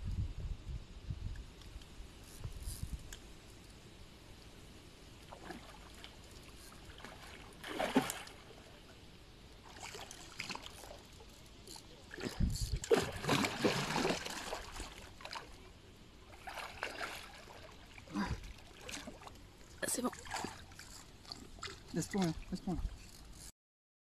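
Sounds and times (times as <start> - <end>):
fish splashing in water: 5.2 - 8.8, 12.0 - 15.7, 16.3 - 19.4.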